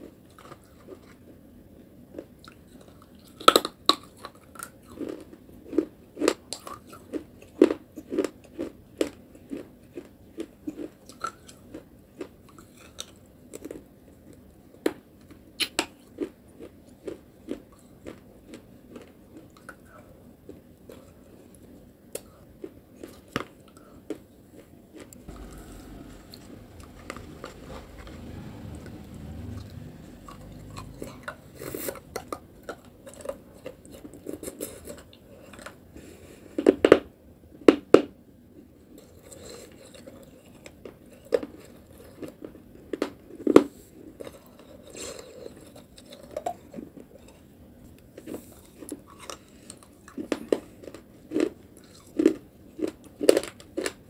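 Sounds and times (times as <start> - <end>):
chewing crunchy clay: 2.0 - 35.8, 38.9 - 54.0
low rumble: 25.2 - 32.5.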